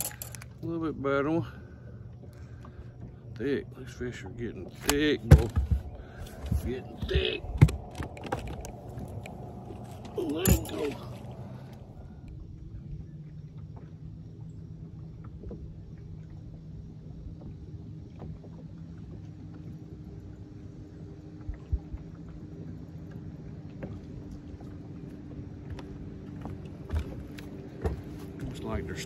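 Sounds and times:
water against hull: 0.0s - 29.0s
sharp knocks on boat: 4.6s - 9.1s, 25.6s - 28.7s.

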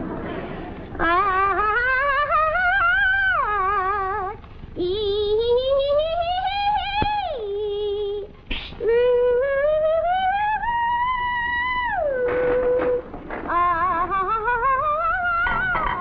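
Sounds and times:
singer breathing: 0.2s - 0.9s
woman singing soprano: 1.0s - 16.0s.

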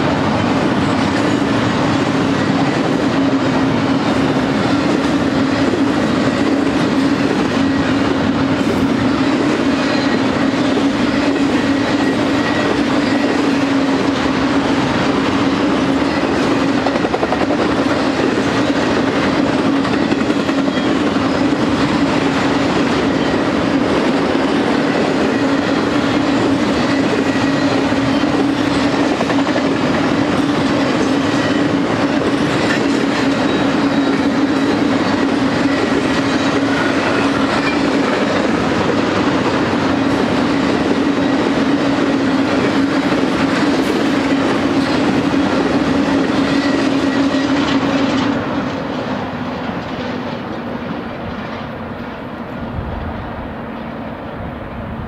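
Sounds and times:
train wheels on rails: 0.0s - 55.0s.

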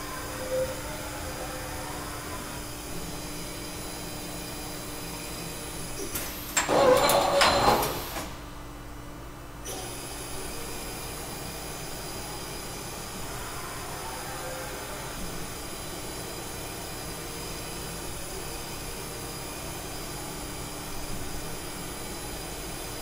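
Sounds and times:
machining center humming: 0.0s - 23.0s
mechanical clatter and whir: 5.9s - 8.6s.

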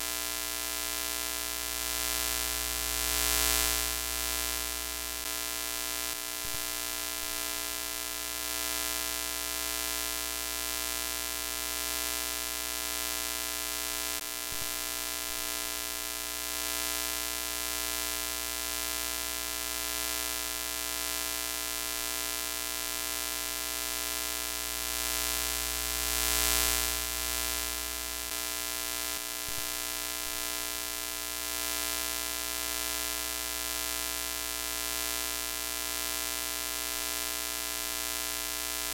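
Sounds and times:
electrical hum-buzz: 0.0s - 38.9s.

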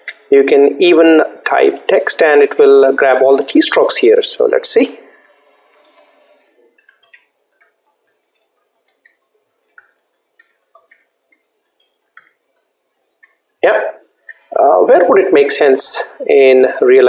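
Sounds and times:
computer keyboard typing: 3.0s - 3.9s, 6.8s - 12.7s.

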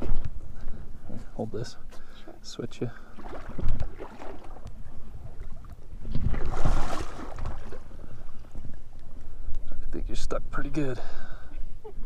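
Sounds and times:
water splashing and sloshing: 0.0s - 9.8s
microphone handling noise: 3.5s - 7.9s
wind rumble: 3.5s - 10.1s.

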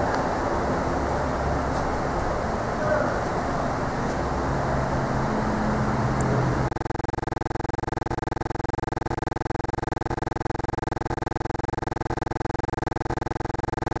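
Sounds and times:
pulsing electronic buzzing tone: 4.6s - 14.0s.

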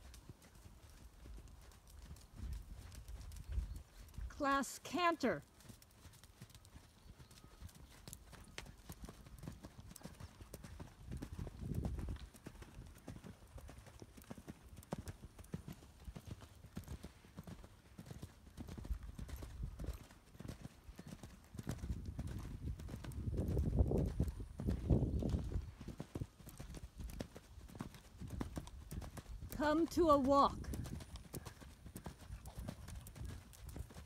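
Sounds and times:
horse hoofbeats on sand: 0.0s - 34.0s.

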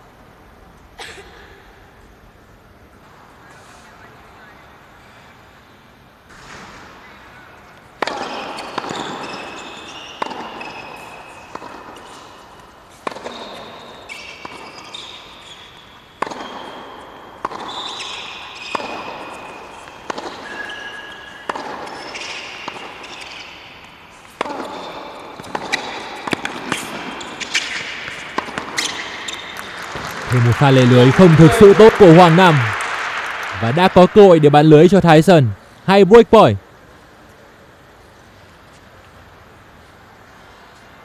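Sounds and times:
tennis ball bouncing: 7.9s - 15.6s, 16.2s - 33.7s
tennis racquet striking ball: 8.0s - 31.0s
shoe squeaks: 8.2s - 30.1s.

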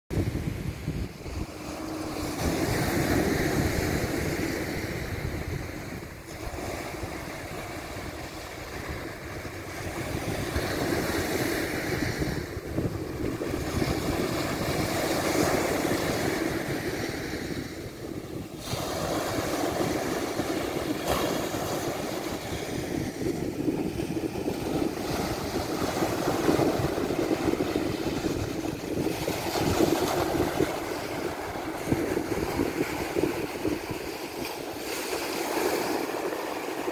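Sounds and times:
waves washing on beach: 0.1s - 36.9s
wind buffeting microphone: 0.1s - 36.9s.

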